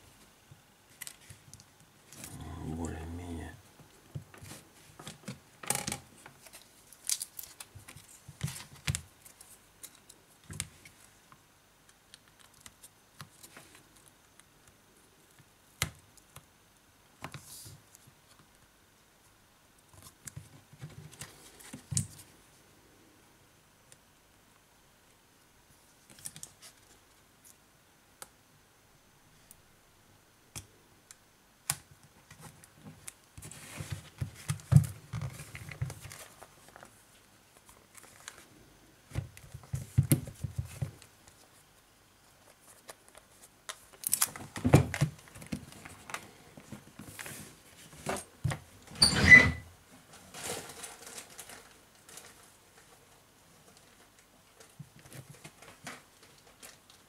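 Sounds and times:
hands handling tablet parts: 0.5s - 2.3s, 3.8s - 16.5s, 31.6s - 48.7s.

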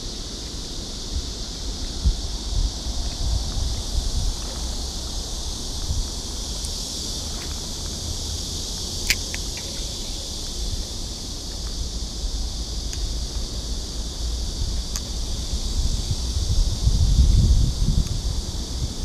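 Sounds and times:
insects droning: 0.0s - 19.0s
wind buffeting microphone: 0.7s - 19.0s
sharp click: 9.0s - 9.8s.

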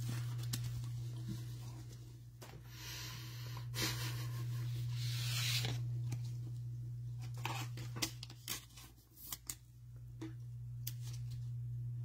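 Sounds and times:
steady low hum: 0.0s - 12.0s
plastic cards sliding and rustling: 4.9s - 6.4s, 7.2s - 9.6s.

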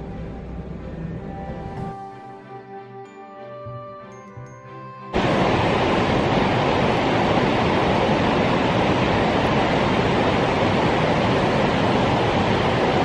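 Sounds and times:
rush of falling water: 5.2s - 13.0s.

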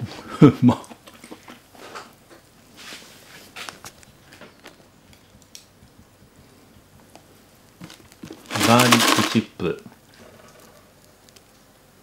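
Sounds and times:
soft handling rustles: 2.7s - 10.0s
faint clicks: 9.9s - 11.7s.

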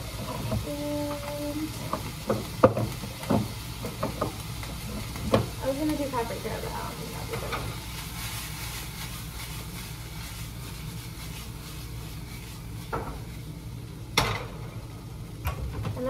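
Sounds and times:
food sizzling in a frying pan: 0.0s - 16.0s
pan clacking on burner: 0.2s - 4.4s.

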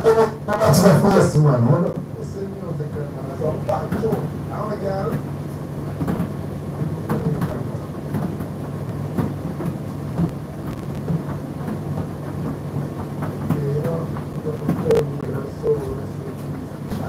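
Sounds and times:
tumble dryer motor hum: 0.0s - 17.0s
drum clicks and knocks: 6.0s - 15.3s.

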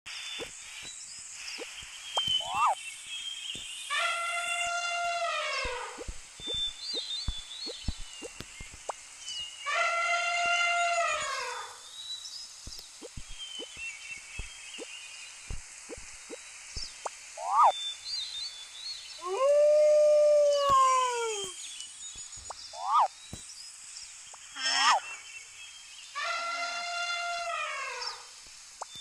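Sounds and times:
wolf howling: 19.2s - 21.6s.

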